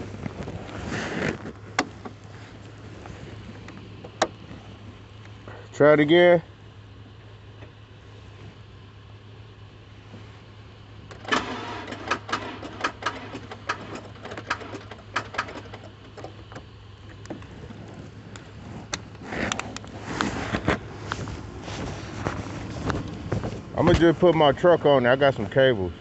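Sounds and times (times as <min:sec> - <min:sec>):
steady low hum: 0:00.0 - 0:26.0
car starter clicking: 0:11.0 - 0:19.9.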